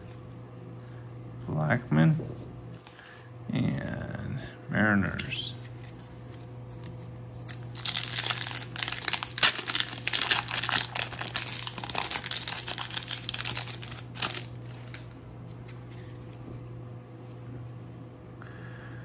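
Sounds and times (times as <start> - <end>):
foil wrapper crinkling: 5.6 - 16.4.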